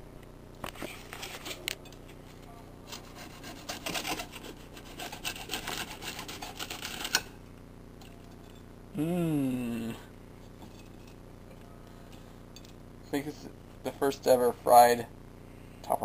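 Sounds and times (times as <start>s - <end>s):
knife sawing through crisp crust: 2.9s - 7.3s.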